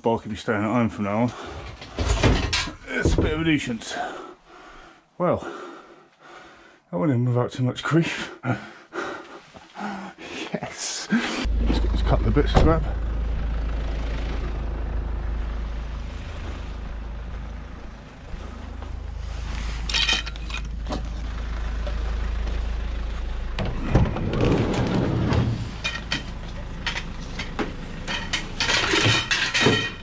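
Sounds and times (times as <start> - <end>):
scrap clunking and rattling: 1.2 - 4.1, 17.3 - 30.0
low rumble: 11.5 - 30.0.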